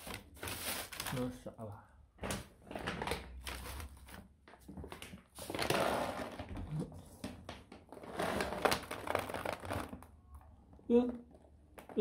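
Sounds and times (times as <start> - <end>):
plastic packaging crinkling: 0.0 - 1.5, 2.6 - 6.5, 7.9 - 10.2.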